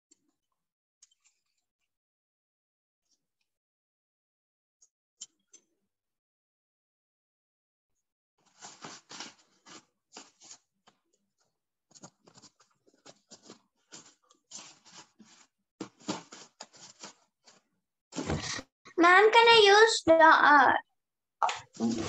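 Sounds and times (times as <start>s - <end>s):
scratching and rustling on paper: 8.4s - 18.6s.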